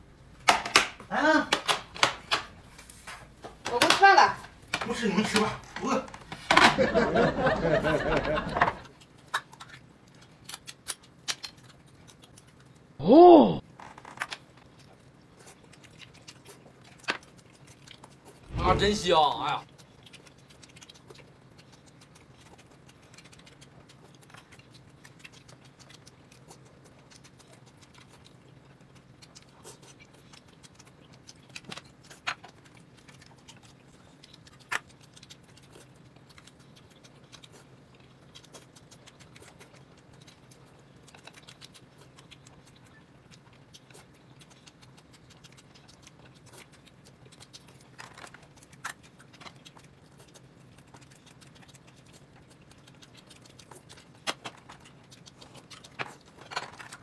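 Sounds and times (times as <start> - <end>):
steady low hum: 16.6 - 31.5.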